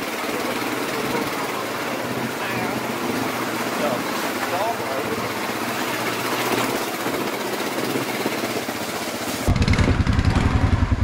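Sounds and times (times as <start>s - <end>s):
atv engine idling: 0.0s - 11.0s.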